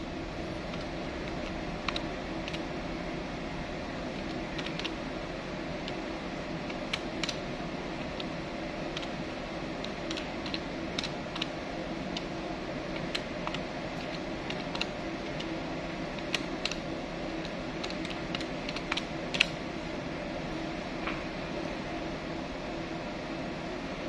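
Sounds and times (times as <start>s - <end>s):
steady low hum: 0.0s - 24.0s
calculator keys clicking: 0.7s - 2.7s, 4.2s - 5.0s, 5.8s - 7.4s, 8.0s - 9.2s, 9.8s - 12.3s, 12.9s - 15.6s, 16.2s - 19.6s.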